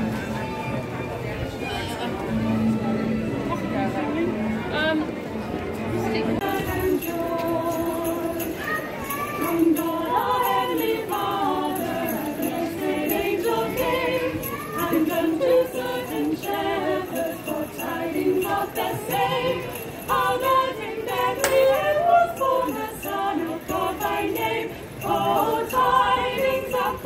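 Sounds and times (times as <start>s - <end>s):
women singing a carol: 6.2s - 27.0s.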